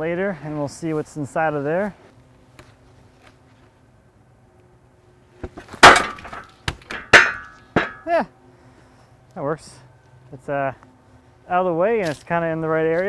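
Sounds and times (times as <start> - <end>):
heavy logs knocking and thudding: 5.4 - 8.1.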